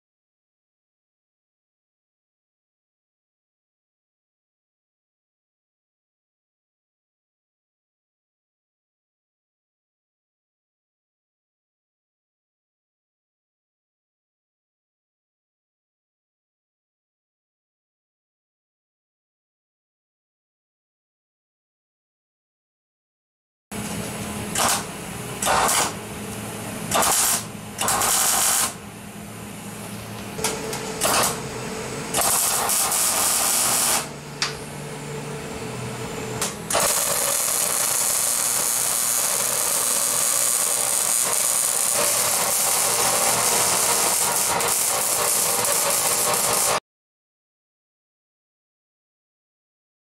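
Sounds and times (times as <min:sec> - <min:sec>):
arc welding: 0:23.8 - 0:28.9, 0:29.6 - 0:34.5, 0:36.4 - 0:46.8.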